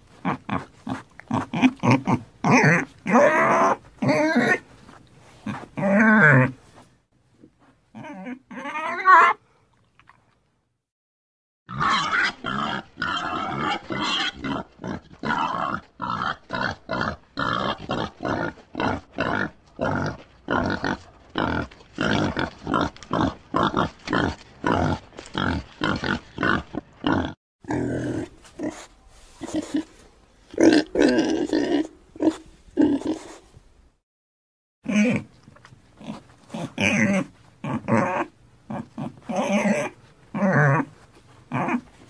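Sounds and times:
pig grunting: 0.2 - 4.6, 11.7 - 29.9, 34.8 - 35.3, 36.0 - 40.9, 41.5 - 41.9.

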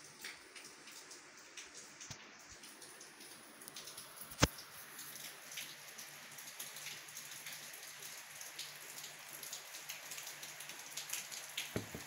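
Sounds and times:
rain drop ticks: 0.0 - 12.0
heavy rain hiss: 11.6 - 12.0
soft knocks: 11.8 - 12.0.

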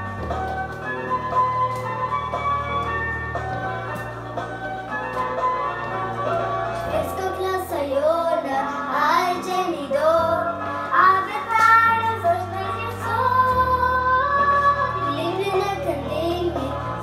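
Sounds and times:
recorded musical accompaniment: 0.0 - 17.0
child singing: 6.9 - 17.0.

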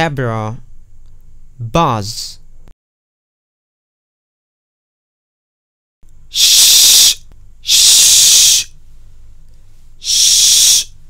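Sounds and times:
person making sh hiss: 6.3 - 8.8, 10.0 - 11.0.

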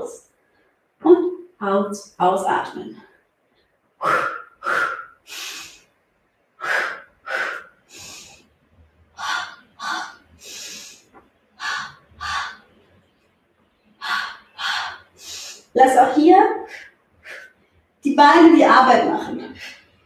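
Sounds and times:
woman breathing hard: 4.0 - 5.9, 6.6 - 8.6, 9.2 - 12.8, 14.0 - 15.8, 16.6 - 17.6.

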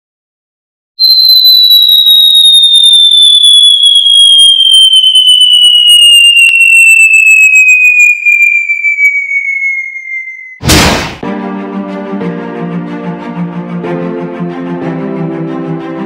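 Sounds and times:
falling whistle tone: 1.0 - 10.6.

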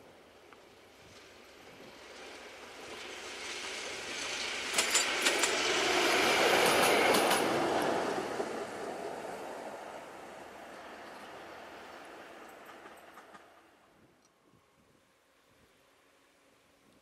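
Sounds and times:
diesel locomotive passing: 0.0 - 14.0
wheels clicking over rail joints: 4.0 - 5.8, 6.4 - 9.3, 10.8 - 14.4.

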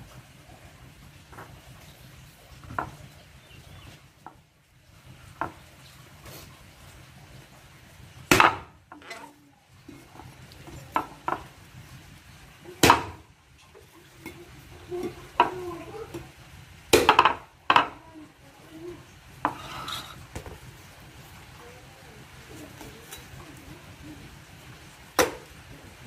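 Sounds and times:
cleaver chopping coconut: 8.3 - 8.7, 12.8 - 13.2, 16.9 - 17.9, 25.2 - 25.4.

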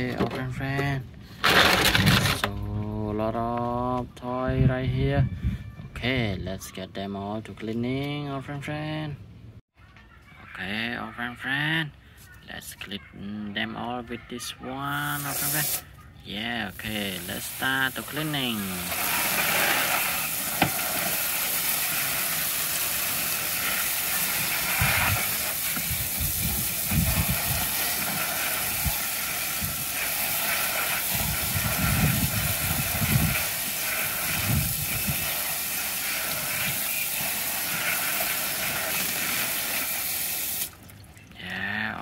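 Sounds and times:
hose spray hitting plastic toys: 15.1 - 15.9, 16.8 - 40.8
water splashing: 38.2 - 41.6.

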